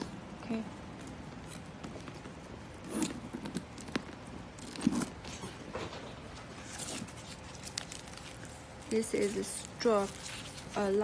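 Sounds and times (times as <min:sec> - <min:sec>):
bag rustling on paper: 0:06.4 - 0:11.0.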